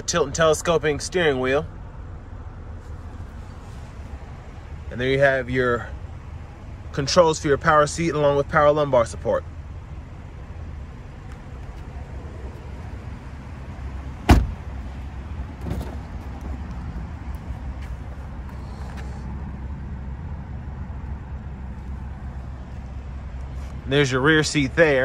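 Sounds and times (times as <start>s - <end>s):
low background rumble: 0.0s - 25.0s
car door shutting: 14.2s - 14.9s, 15.5s - 16.6s.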